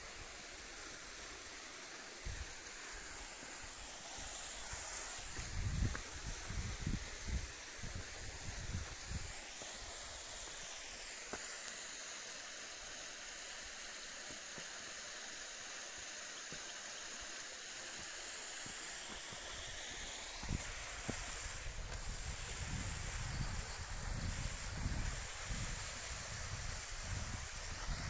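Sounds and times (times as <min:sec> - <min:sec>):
creek running over rocks: 0:00.0 - 0:28.0
wind bumps on microphone: 0:05.3 - 0:09.2, 0:20.4 - 0:28.0.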